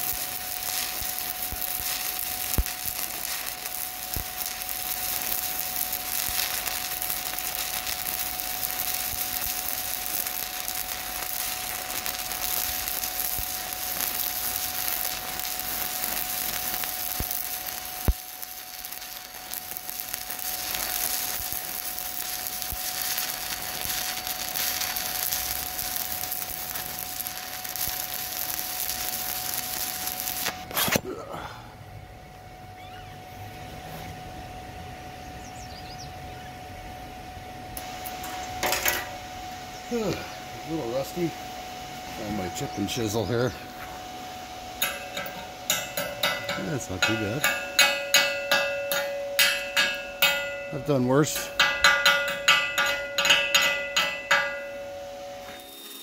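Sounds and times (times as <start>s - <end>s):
welding arc crackling: 0.0s - 31.1s, 37.7s - 56.0s
faint steady tone: 31.3s - 56.0s.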